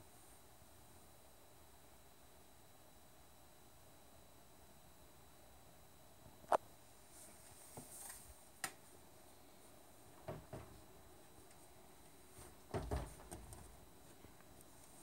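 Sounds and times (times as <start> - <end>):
dull thump: 10.3 - 10.8, 12.7 - 13.6.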